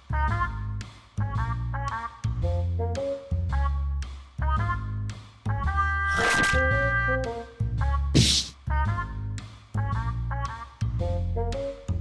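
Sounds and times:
upbeat jazzy music with horns: 0.0 - 12.0.

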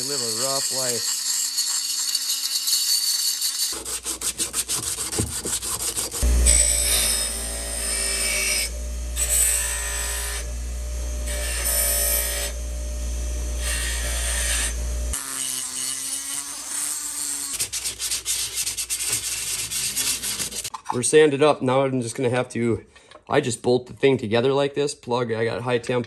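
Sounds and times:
scratchy sanding strokes: 0.0 - 6.3, 13.8 - 20.7
power tool grinding: 0.0 - 20.7.

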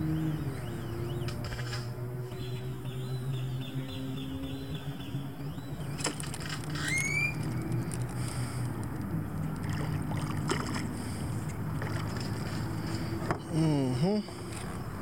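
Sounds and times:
bird chirp: 0.0 - 6.1, 6.7 - 7.8
boat motor humming: 0.0 - 15.0.

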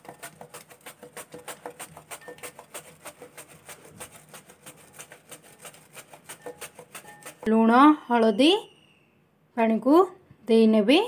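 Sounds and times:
banana scraping on grater: 0.0 - 7.5.

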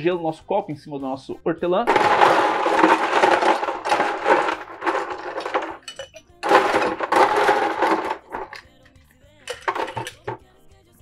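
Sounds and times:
ice cubes clinking into glass: 1.9 - 10.4.

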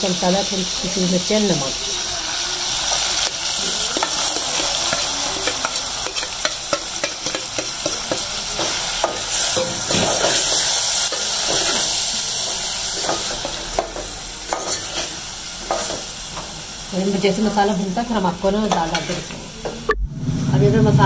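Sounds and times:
vegetables sizzling in hot oil: 0.0 - 19.9.

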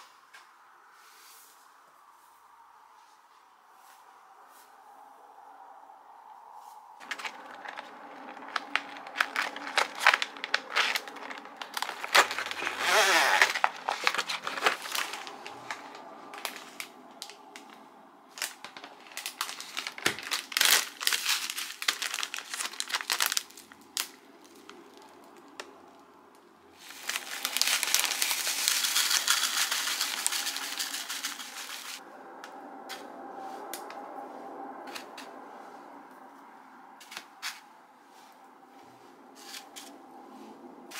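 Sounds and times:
plastic packaging crinkling: 7.0 - 25.7, 26.8 - 32.0.

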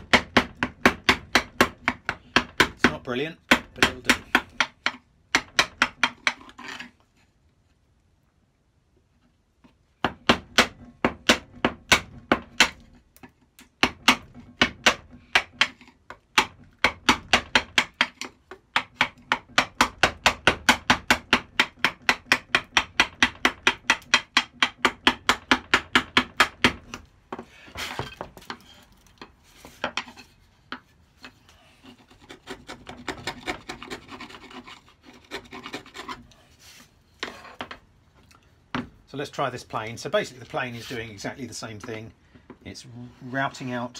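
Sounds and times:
chisel clicking on wood: 0.0 - 6.6, 10.0 - 27.0
chisel scraping wood: 1.1 - 7.3, 14.3 - 22.8, 26.8 - 37.8, 40.2 - 42.0.

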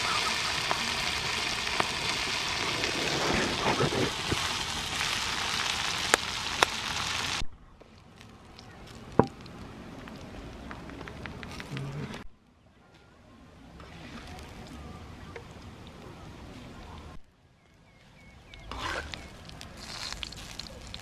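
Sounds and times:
insects sizzling in a wok: 0.0 - 3.3, 4.0 - 7.4.

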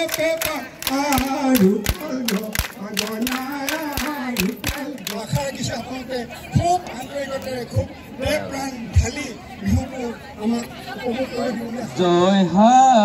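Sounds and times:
person chanting: 0.0 - 5.5.

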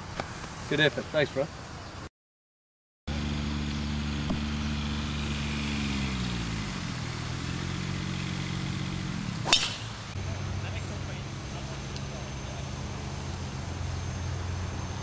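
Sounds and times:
small engine running: 3.1 - 15.0.

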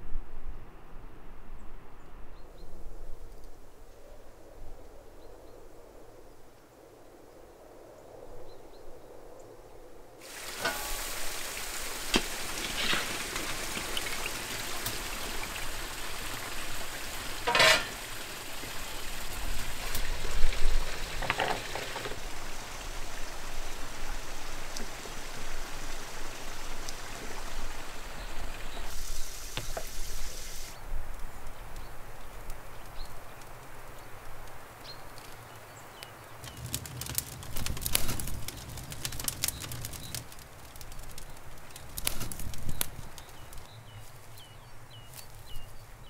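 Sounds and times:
food sizzling in a pan: 10.2 - 22.5, 23.6 - 30.8
crackles: 10.2 - 45.8.

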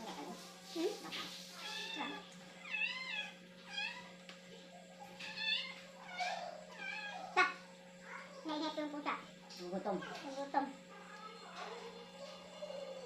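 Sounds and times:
cat meowing: 1.6 - 4.1, 5.2 - 8.3.

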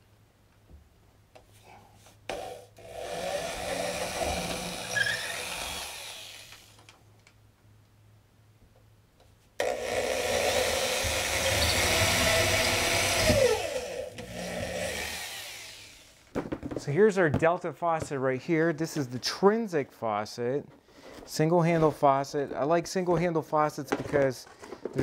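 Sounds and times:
electric drill boring: 2.3 - 6.9, 9.6 - 16.3.

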